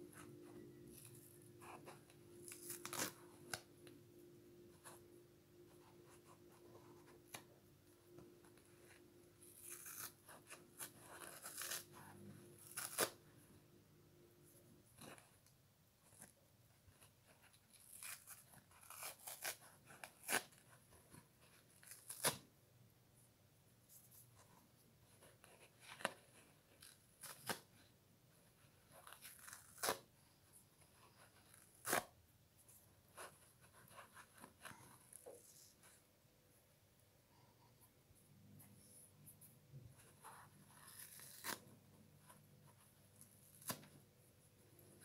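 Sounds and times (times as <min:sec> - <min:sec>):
foam sponge ripping: 0:02.4 - 0:03.6, 0:09.4 - 0:13.2, 0:17.7 - 0:20.6, 0:21.7 - 0:22.4, 0:29.0 - 0:30.1, 0:31.4 - 0:32.1, 0:40.7 - 0:41.6.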